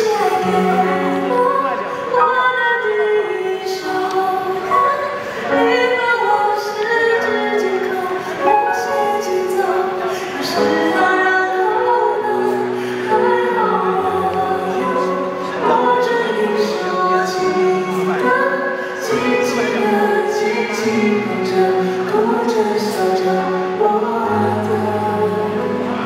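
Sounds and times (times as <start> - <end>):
man singing a slow love song: 12.3 - 26.0.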